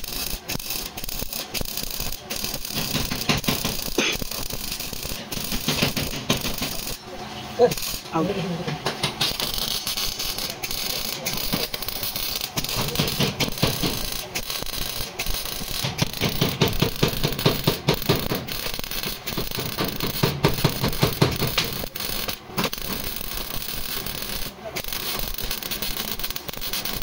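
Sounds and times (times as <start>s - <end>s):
rapid knocks and rattling: 2.7s - 3.9s, 5.2s - 6.9s, 15.7s - 21.8s.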